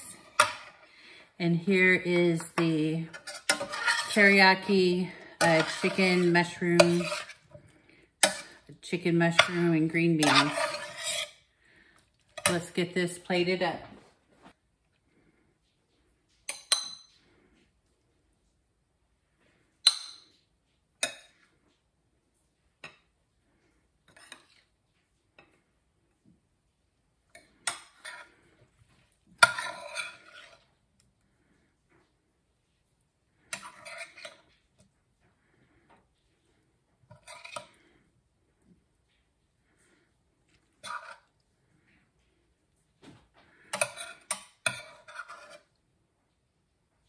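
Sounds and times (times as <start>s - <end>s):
serving spoon clattering on dishes: 16.5s - 17.2s.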